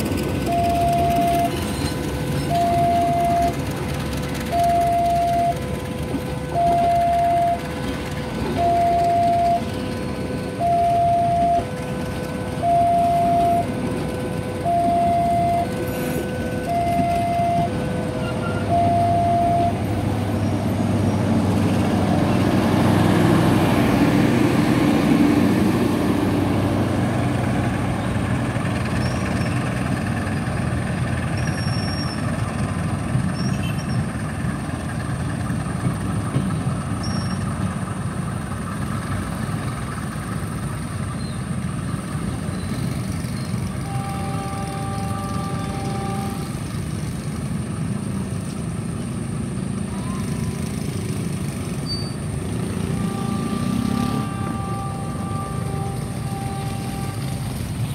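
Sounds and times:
train rumbling and clattering: 0.0s - 57.9s
two-tone level-crossing alarm: 0.4s - 20.4s, 43.8s - 46.7s, 52.1s - 57.9s.

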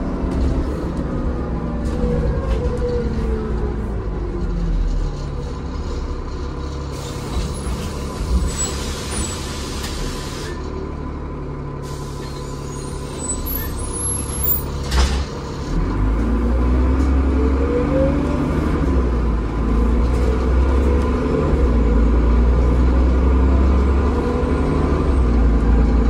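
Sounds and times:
bus engine and drive whine: 0.0s - 26.0s
air brakes hissing: 5.8s - 10.7s, 11.8s - 15.8s.

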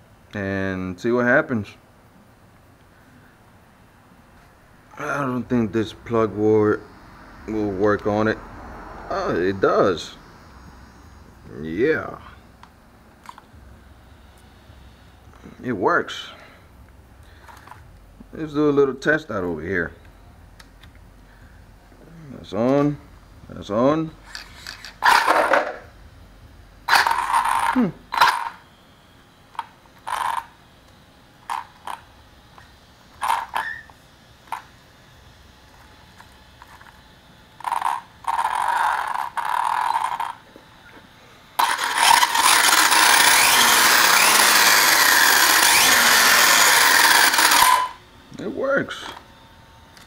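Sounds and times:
electric motor revving: 24.2s - 25.8s, 26.9s - 28.6s, 37.6s - 40.4s, 41.6s - 48.0s.

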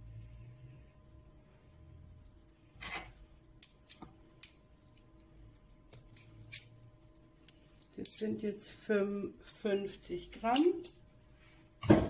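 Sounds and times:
metal spoons scraping: 6.1s - 6.8s.

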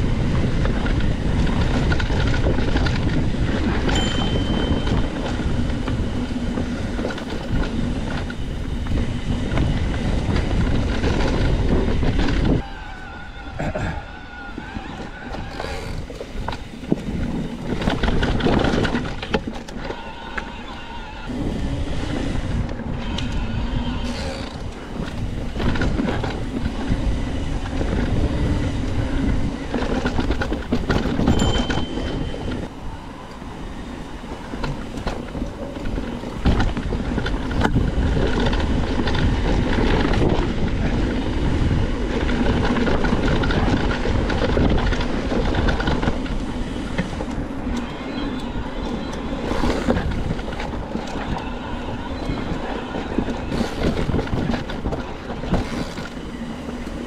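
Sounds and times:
bike chain and frame shaking: 0.0s - 13.2s
bike tyres rattling over rough ground: 0.0s - 57.0s.

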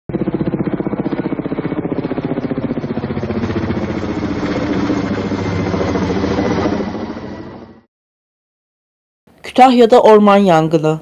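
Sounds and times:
helicopter rotor beating overhead: 0.1s - 7.9s.

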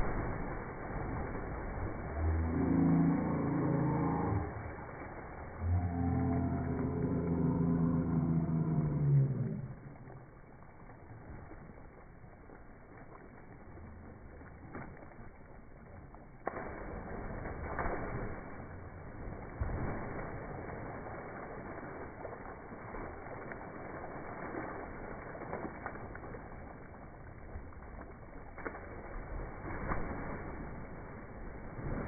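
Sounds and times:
lake water splashing: 0.0s - 32.0s.

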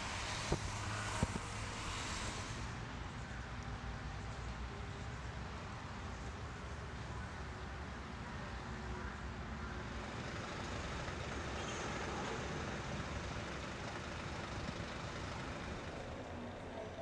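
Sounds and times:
traffic rumble: 0.0s - 17.0s
lorry engine running: 9.7s - 17.0s.

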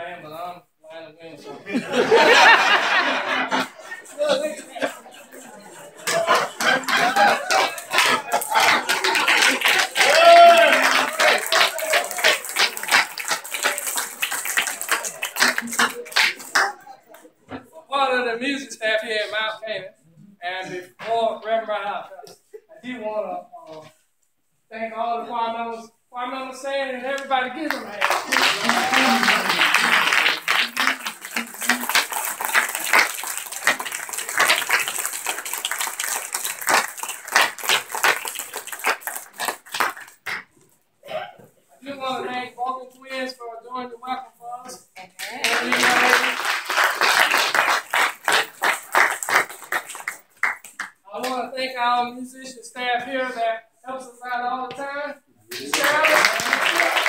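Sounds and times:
voices: 1.6s - 17.7s, 27.1s - 32.5s
congregation clapping: 1.9s - 17.3s, 27.2s - 40.6s, 45.2s - 51.4s, 55.5s - 57.0s.

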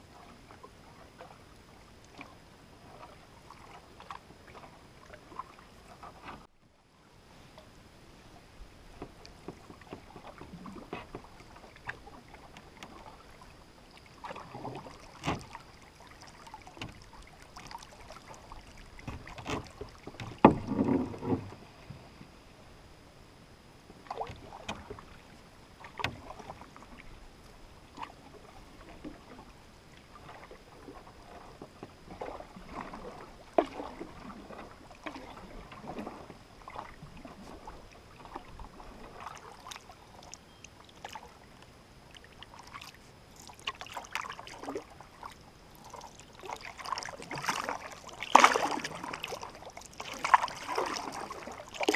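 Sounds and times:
paddle splashing and dripping: 0.0s - 6.5s, 8.8s - 22.1s, 23.9s - 51.9s
paddle knocking: 8.8s - 13.2s, 16.3s - 22.1s, 25.8s - 27.1s.

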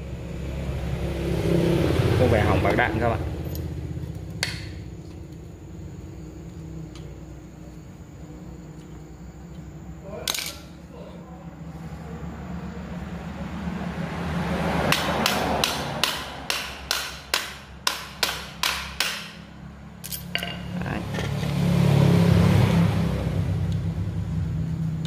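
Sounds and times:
steady low hum: 0.0s - 14.3s
sharp knocks of router parts: 14.9s - 19.4s.

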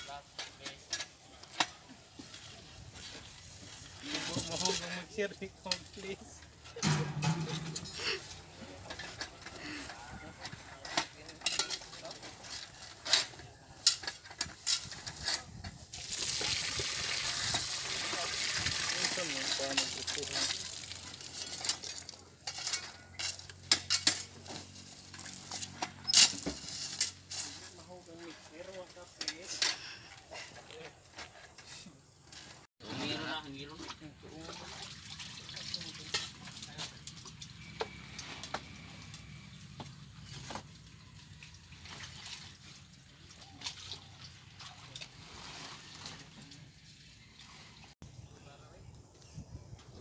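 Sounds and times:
rebar clanking against steel pins: 6.7s - 9.4s
water trickling and dripping: 15.9s - 22.0s, 33.9s - 37.8s, 39.9s - 45.2s
small splashes: 33.8s - 37.5s, 40.7s - 46.6s.

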